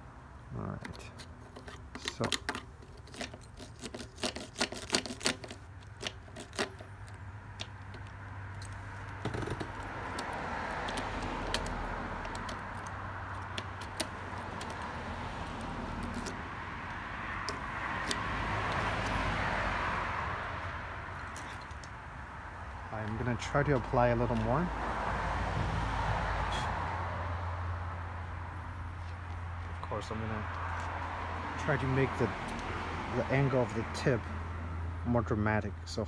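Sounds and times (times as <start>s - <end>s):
key rattling in ignition lock: 0.9s - 14.8s, 21.1s - 22.0s.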